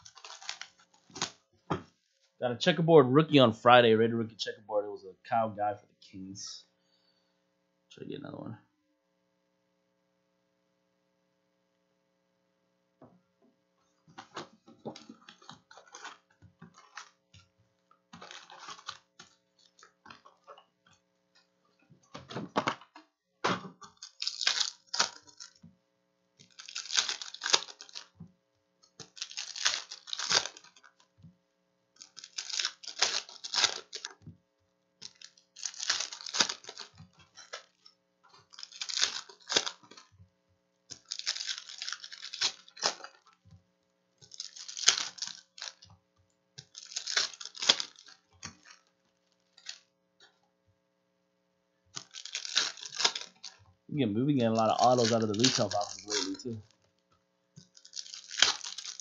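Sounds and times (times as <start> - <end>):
foil card packs crinkling: 0.0 - 1.4, 14.1 - 17.3, 18.2 - 20.4, 23.8 - 25.6, 26.4 - 28.2, 29.0 - 31.1, 32.0 - 34.2, 35.0 - 40.1, 40.9 - 43.4, 44.2 - 45.9, 46.6 - 49.9, 52.0 - 53.7, 54.4 - 57.0, 57.6 - 59.0.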